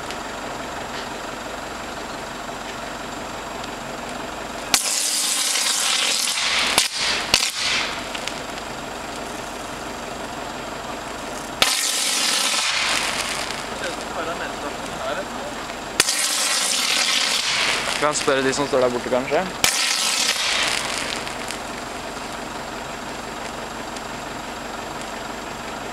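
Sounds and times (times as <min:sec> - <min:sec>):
electric arc sizzling: 0:03.5 - 0:25.3
sharp bangs: 0:04.6 - 0:09.6, 0:11.2 - 0:22.5.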